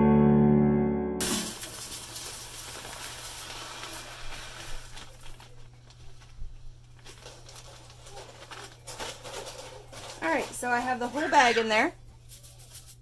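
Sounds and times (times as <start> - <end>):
music: 0.0 - 1.5
plastic bag crinkling: 1.2 - 13.0
wax flakes rustling onto pile: 1.2 - 13.0.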